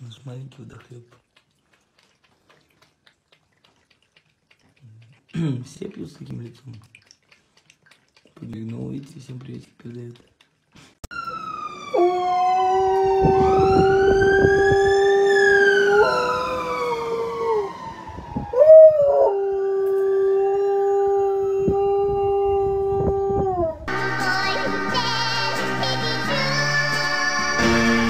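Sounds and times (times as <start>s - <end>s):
siren wailing: 11.1s - 24.0s
dog howling: 11.2s - 17.8s, 18.5s - 23.9s
music: 23.9s - 28.0s.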